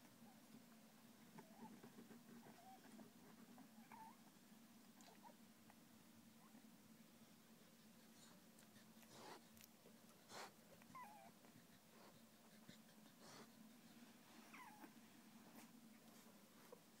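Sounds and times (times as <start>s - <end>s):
puppies snuffling: 6.4s - 17.0s
puppies whimpering: 10.9s - 11.4s, 14.4s - 15.6s.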